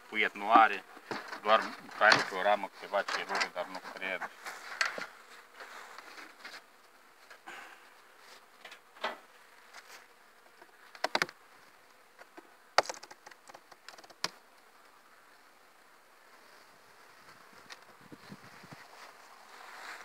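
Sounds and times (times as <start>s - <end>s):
faint bees buzzing: 0.0s - 20.0s
wooden board knocking: 12.8s - 14.3s.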